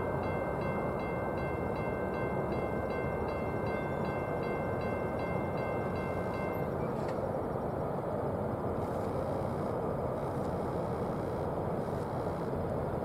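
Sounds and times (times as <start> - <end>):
crossing bell ringing: 0.0 - 7.0
freight train rumbling: 0.0 - 13.0.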